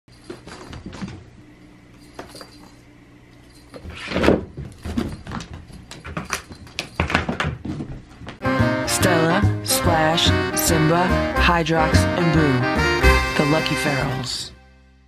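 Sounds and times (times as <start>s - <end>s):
cat toys clicking and knocking: 4.2s - 7.9s.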